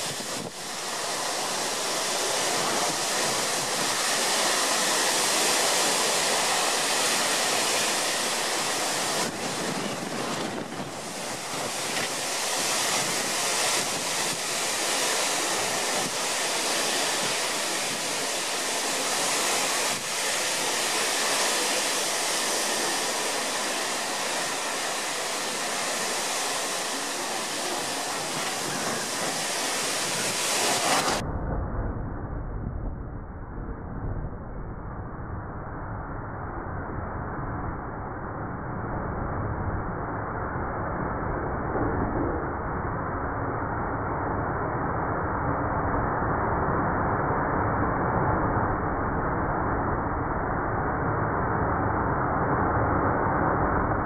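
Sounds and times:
storm wind blowing through trees: 0.0s - 54.0s.

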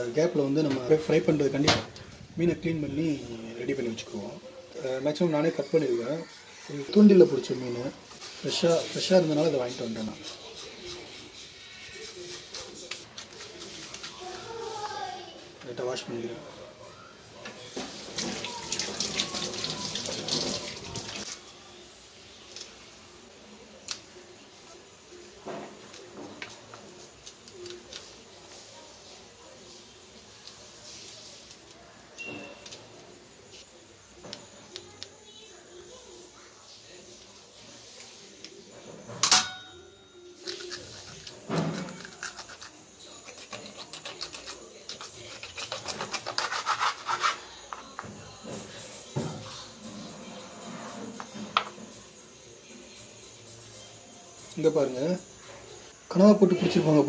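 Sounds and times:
water running from a tap: 17.8s - 21.3s
kitchen scissors snipping: 40.4s - 47.4s
knife sawing through fish: 42.0s - 47.5s.

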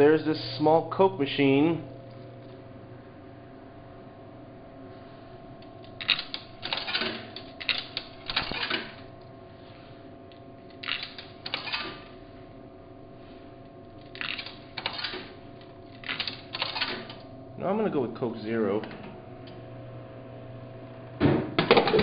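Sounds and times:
steady hum: 0.0s - 22.0s
coins clinking through vending machine: 6.0s - 9.0s, 10.8s - 12.0s, 16.0s - 17.2s.

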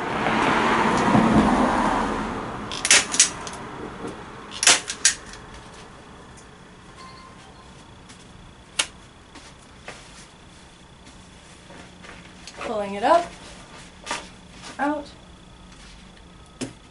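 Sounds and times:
staple gun snapping: 2.7s - 3.6s.

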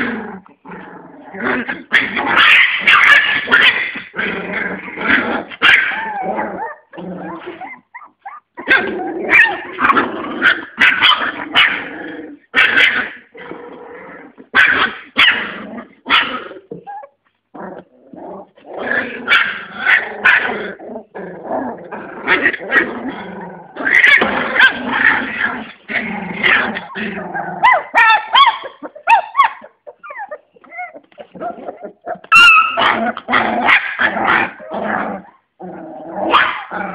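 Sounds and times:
puppies growling and yipping: 0.0s - 36.9s.

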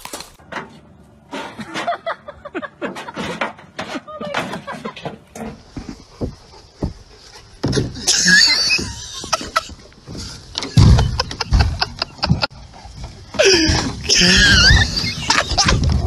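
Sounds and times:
high squealing: 13.4s - 15.8s.

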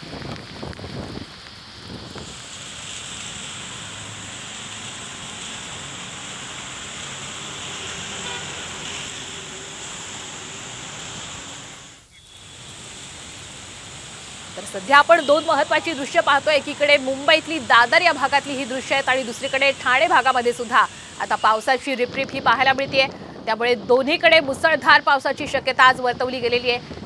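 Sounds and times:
rain hissing: 0.0s - 23.5s
traffic on wet roads: 0.0s - 27.0s.

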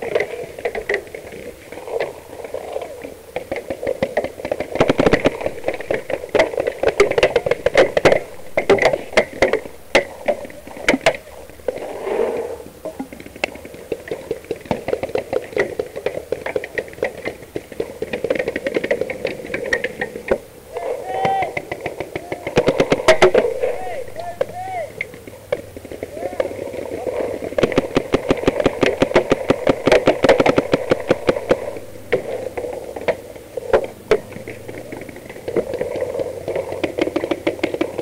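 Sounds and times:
paintball markers firing: 21.3s - 26.6s, 27.5s - 32.7s.

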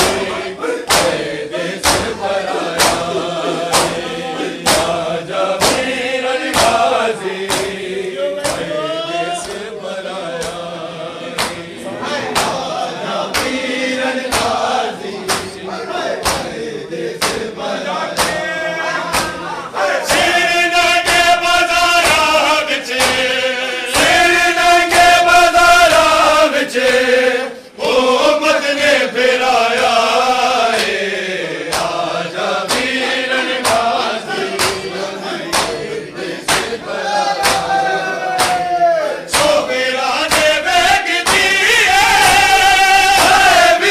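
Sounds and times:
hands slapping chests: 0.0s - 8.8s, 10.3s - 10.7s, 11.3s - 11.7s, 12.3s - 15.6s, 16.2s - 16.6s, 17.2s - 25.3s, 30.7s - 31.0s, 31.6s - 36.8s, 37.4s - 39.7s, 40.3s - 43.7s
men chanting together: 0.0s - 43.9s.

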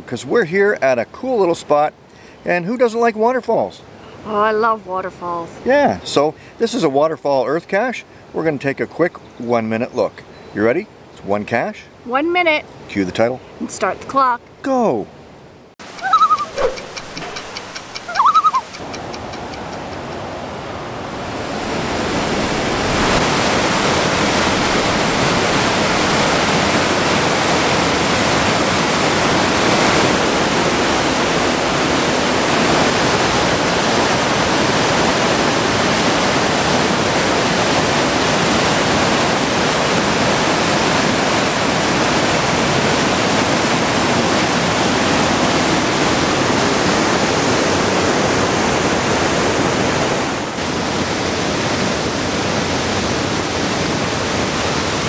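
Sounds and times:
water rushing over rock: 20.2s - 55.0s.

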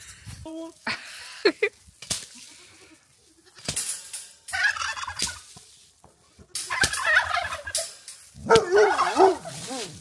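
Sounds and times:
turkey gobbling: 4.5s - 5.5s, 6.6s - 9.7s.

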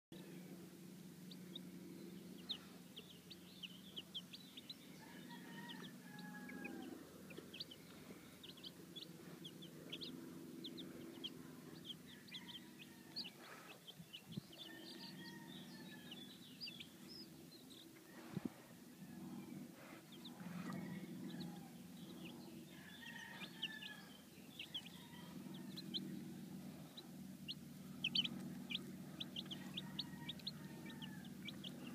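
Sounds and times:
chicks peeping: 0.2s - 31.9s
faint low hum: 0.2s - 31.9s.

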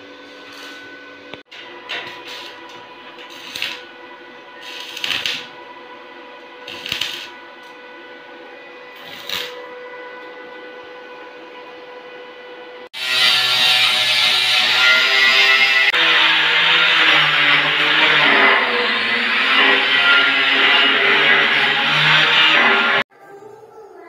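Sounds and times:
welding arc hissing: 0.2s - 0.8s, 2.0s - 3.9s, 4.6s - 5.6s, 6.6s - 7.4s, 9.0s - 9.6s.

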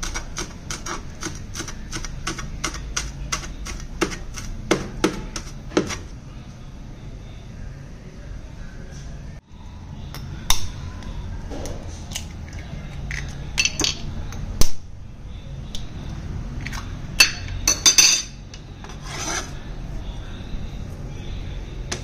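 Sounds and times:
cleaver scraping into bowl: 18.8s - 19.6s.

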